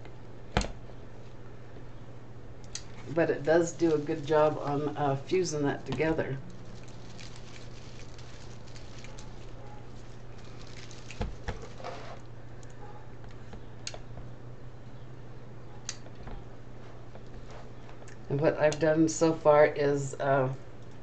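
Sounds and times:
steady low hum: 0.0s - 21.0s
plastic mesh rustling and crinkling: 2.9s - 12.3s.

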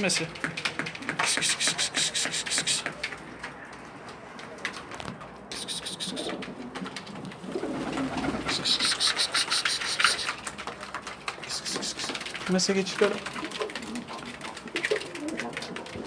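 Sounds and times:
rustling and ticking: 0.0s - 16.0s
pigeons cooing: 5.5s - 10.7s, 11.4s - 12.5s, 13.2s - 16.0s.

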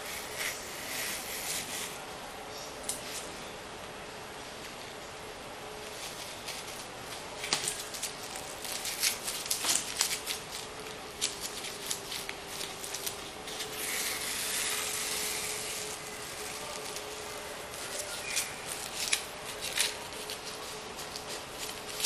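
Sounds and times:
tape peeling off board: 7.4s - 22.0s.

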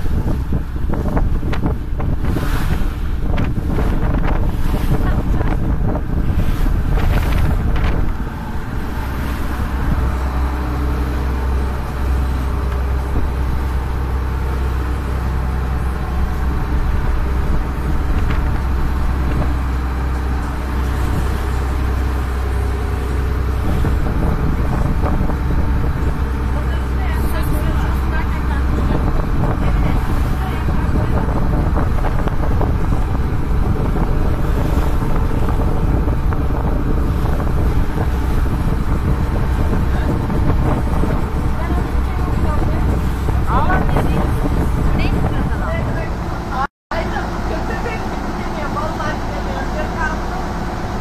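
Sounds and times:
boat engine droning: 0.0s - 51.0s
water rushing: 0.0s - 51.0s
wind buffeting microphone: 0.0s - 51.0s.

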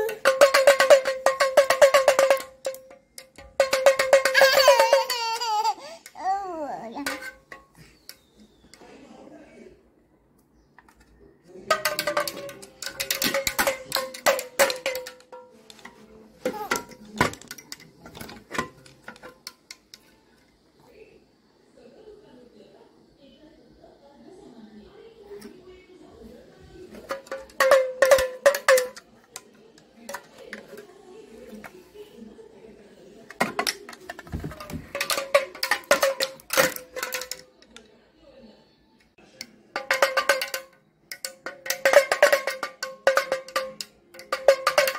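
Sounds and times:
toy pellet drum rattling: 0.0s - 7.8s, 11.6s - 15.8s, 26.9s - 30.9s, 33.3s - 37.8s, 39.7s - 44.9s.

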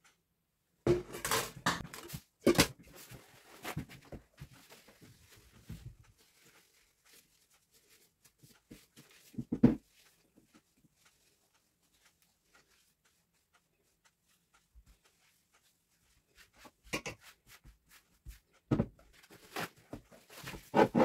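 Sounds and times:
paper towels rustling and crumpling: 2.9s - 10.2s.

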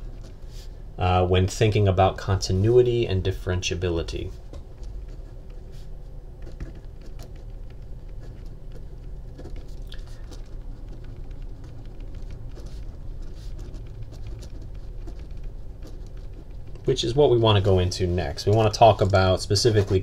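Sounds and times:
steady low hum: 0.0s - 20.0s
pen writing on paper: 5.0s - 16.8s.

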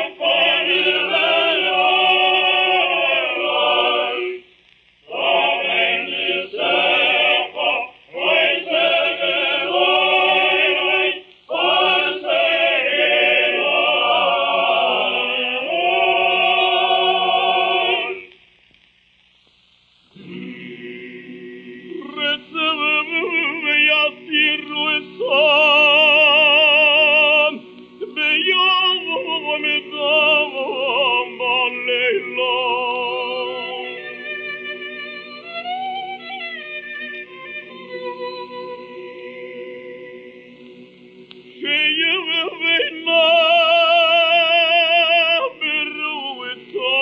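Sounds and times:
man singing cantorial prayer: 22.0s - 33.4s
sustained accompaniment chords: 24.0s - 41.9s.

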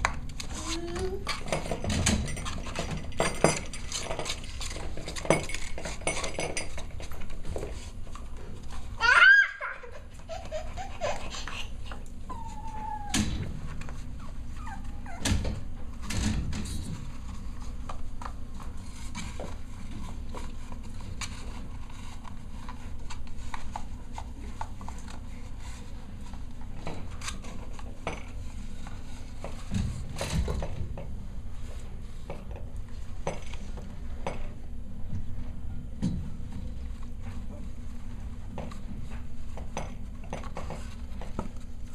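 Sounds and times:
paws and toys scuffling: 0.0s - 30.8s.

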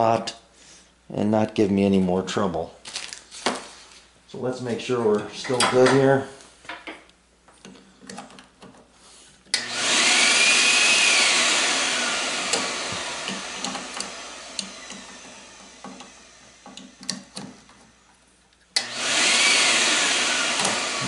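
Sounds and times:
vacuum cleaner whine: 9.5s - 18.1s, 18.8s - 21.0s.

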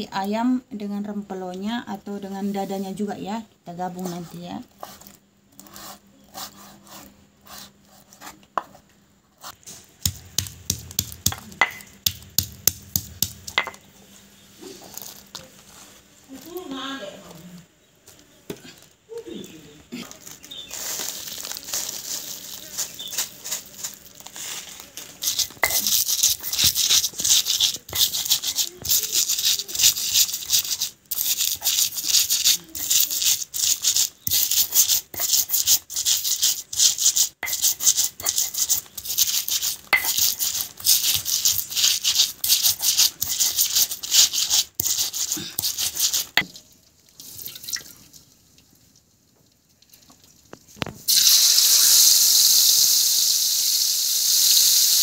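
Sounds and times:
spice paste sizzling in oil: 9.4s - 13.7s, 20.2s - 46.5s, 51.1s - 55.0s
stone mortar grinding: 9.4s - 13.8s, 20.6s - 46.5s.

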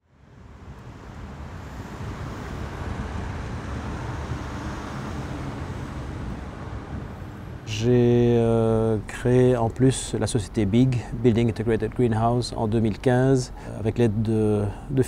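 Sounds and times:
low rumble of traffic: 0.0s - 15.0s
train crossing bridge: 0.2s - 14.9s.

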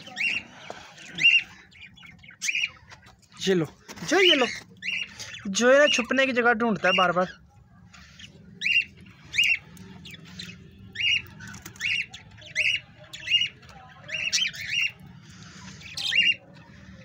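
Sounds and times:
parakeet squawks: 6.8s - 17.0s.

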